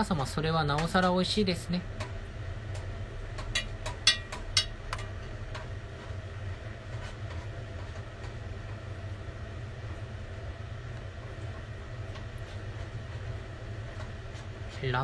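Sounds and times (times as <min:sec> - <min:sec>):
steady low hum: 0:00.0 - 0:15.0
utensil clinking against pot: 0:03.4 - 0:05.1.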